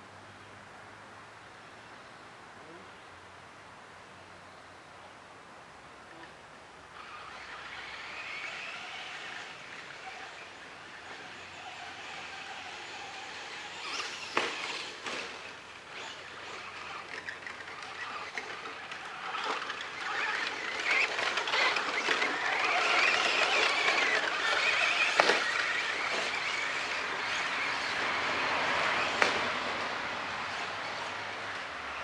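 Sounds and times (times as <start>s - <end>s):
rc truck motor whine: 6.9s - 32.0s
rc trucks knocking over bumps: 7.0s - 28.2s, 28.8s - 29.9s.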